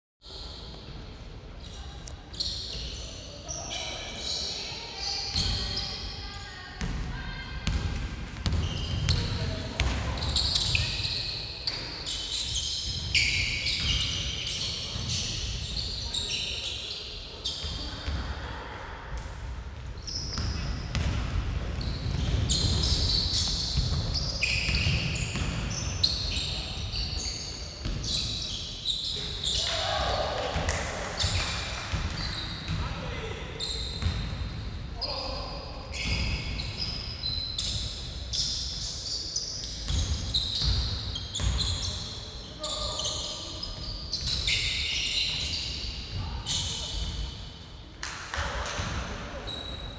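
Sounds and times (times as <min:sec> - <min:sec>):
sneakers squeaking on wooden floor: 0:08.4 - 0:18.2, 0:21.7 - 0:29.8, 0:31.2 - 0:32.9, 0:33.6 - 0:35.3, 0:35.9 - 0:47.4.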